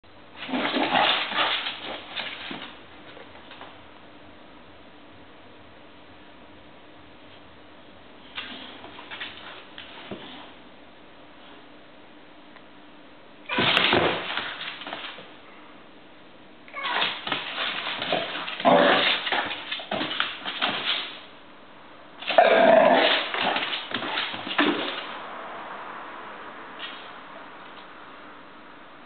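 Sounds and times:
dog growling and yipping: 0.4s - 2.0s, 16.7s - 20.2s, 22.2s - 25.0s.

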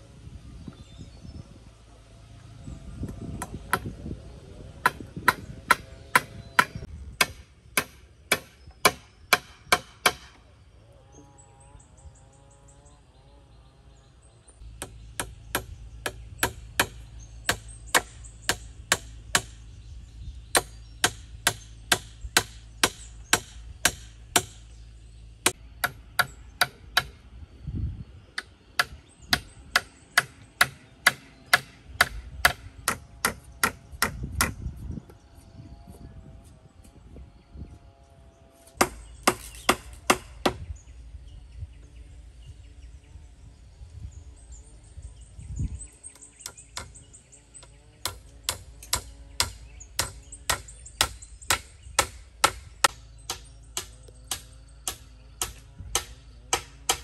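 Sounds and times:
hammer striking nails into wood: 4.8s - 10.4s, 20.6s - 24.6s.

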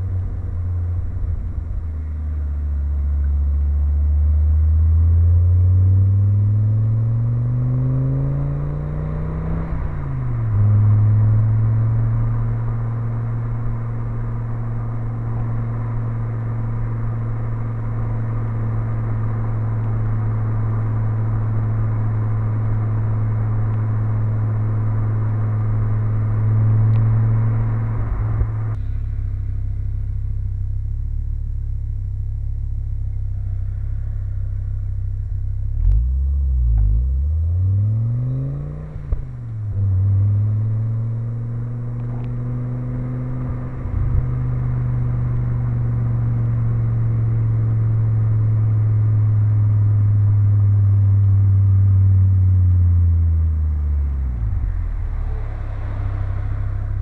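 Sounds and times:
car engine and exhaust droning: 0.0s - 57.0s.

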